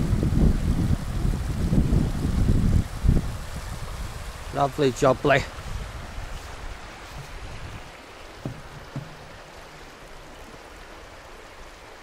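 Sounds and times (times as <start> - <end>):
river rushing over stones: 0.0 - 12.0
soft knocks: 8.4 - 9.8.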